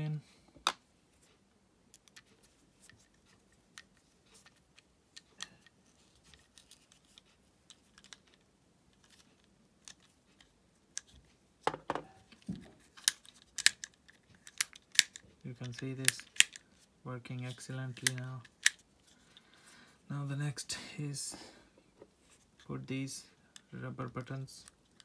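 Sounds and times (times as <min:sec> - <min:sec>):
plastic clicks and knocks: 0:11.0 - 0:16.6.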